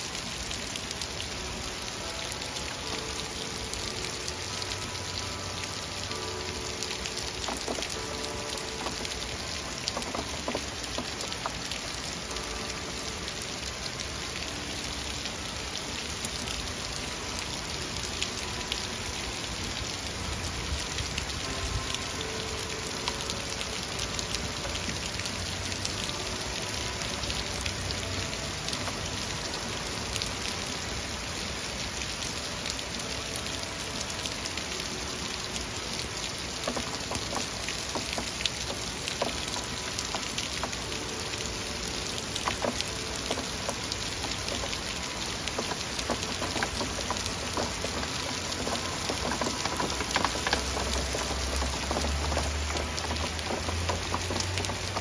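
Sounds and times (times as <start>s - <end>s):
heavy rain falling: 0.0s - 55.0s
raindrop hits: 0.2s - 19.5s, 34.1s - 55.0s
faint church bell chimes: 1.4s - 10.0s, 21.3s - 25.0s.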